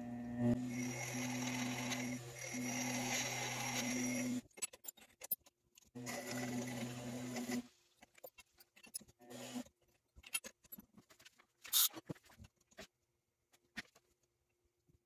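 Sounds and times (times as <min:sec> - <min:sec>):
lathe motor humming: 0:00.0 - 0:04.4.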